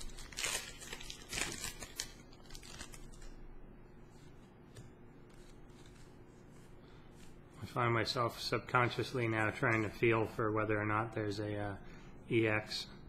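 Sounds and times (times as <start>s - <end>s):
foil wrapper crinkling and tearing: 0.0s - 3.4s
cards being handled: 4.0s - 7.4s.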